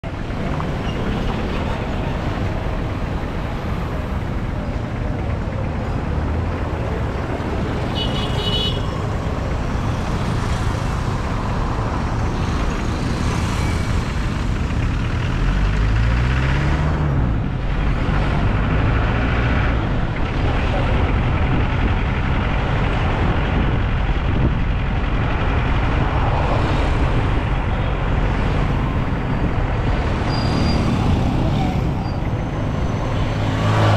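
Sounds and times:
car road and engine noise: 0:00.0 - 0:33.9
engine revving: 0:12.6 - 0:20.1.

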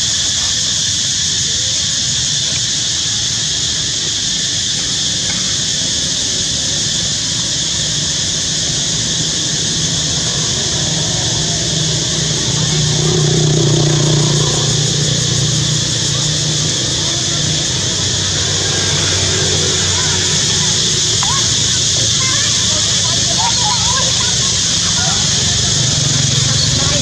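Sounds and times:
high hiss-like drone: 0:00.0 - 0:27.0
low motor hum: 0:09.4 - 0:27.0.

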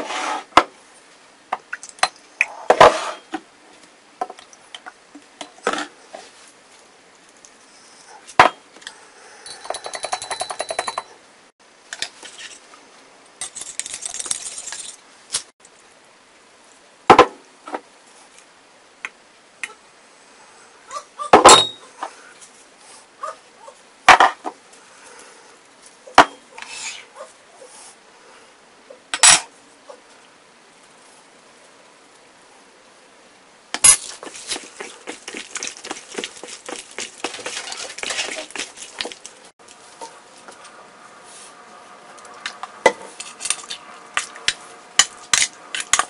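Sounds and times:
metal spoon clinking in glass mug: 0:09.4 - 0:11.1
utensils knocking and clinking: 0:09.5 - 0:11.2.

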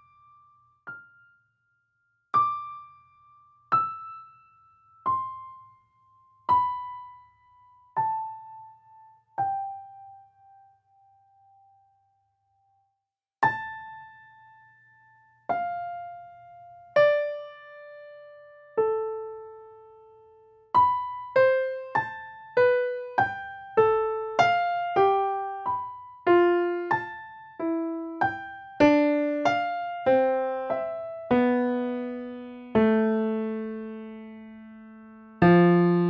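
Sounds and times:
solo piano music: 0:00.0 - 0:12.8, 0:13.4 - 0:36.0.

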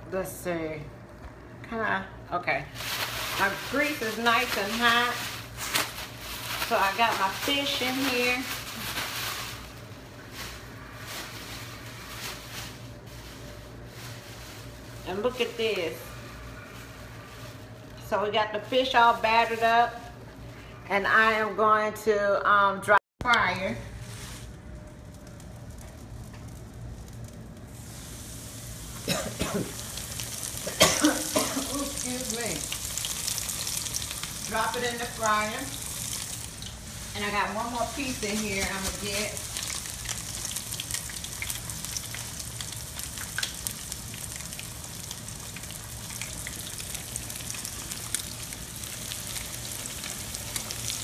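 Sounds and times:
fish frying in hot oil: 0:25.5 - 0:51.0
person coughing: 0:29.0 - 0:29.8, 0:30.6 - 0:32.0.

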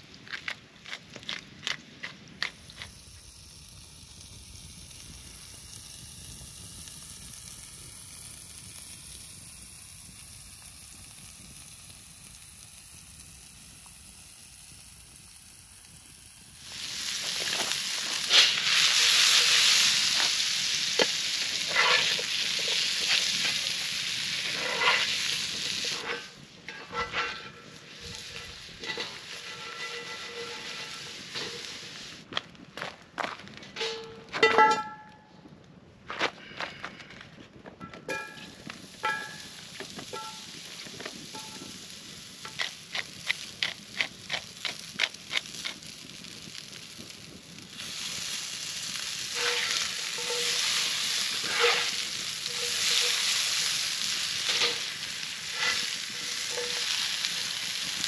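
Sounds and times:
potatoes sizzling in skillet: 0:02.4 - 0:32.3, 0:38.1 - 0:58.0
seasoning shaker rattling: 0:17.2 - 0:26.3, 0:49.3 - 0:58.0
spatula scraping and tapping pan: 0:21.0 - 0:23.7, 0:24.5 - 0:31.8, 0:49.3 - 0:58.0.

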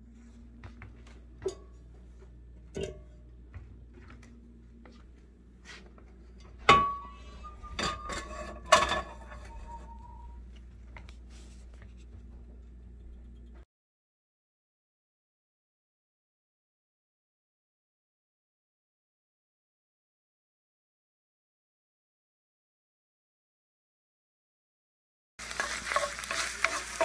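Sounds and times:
steady low hum: 0:00.0 - 0:13.6
cast-iron skillet clanks ringing: 0:06.6 - 0:10.2, 0:25.6 - 0:27.0.

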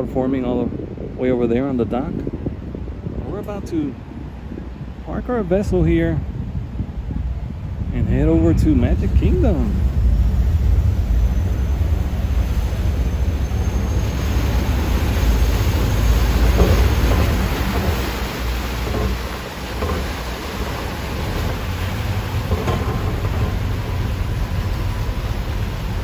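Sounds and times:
ferry engine rumble: 0:00.0 - 0:26.0
propeller wash churning: 0:07.8 - 0:26.0.

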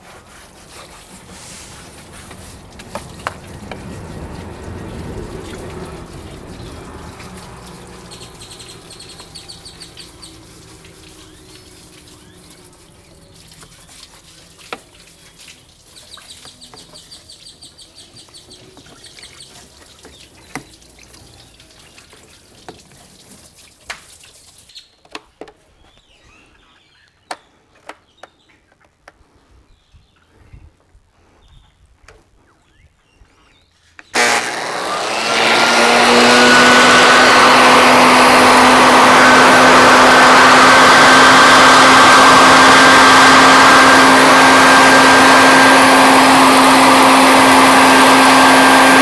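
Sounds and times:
water running and trickling: 0:00.5 - 0:24.9.

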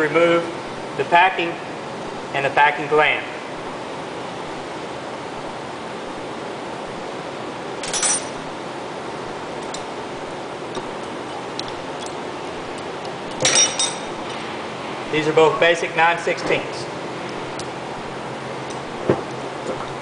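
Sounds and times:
hand tool clinking on metal: 0:13.3 - 0:14.1.

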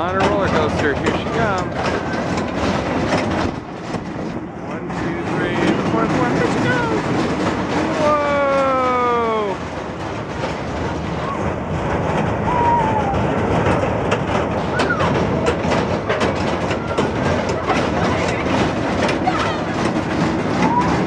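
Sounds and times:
roller coaster rumbling on track: 0:00.0 - 0:21.0
person shouting whoa: 0:07.9 - 0:09.6, 0:12.5 - 0:13.2.

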